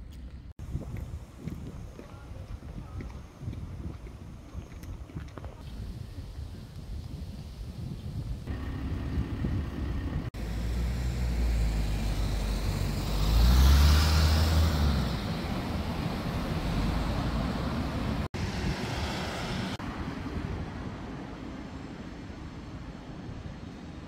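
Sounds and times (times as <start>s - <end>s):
steady rumble of traffic: 0.0s - 24.0s
vehicle passing close: 8.5s - 20.0s.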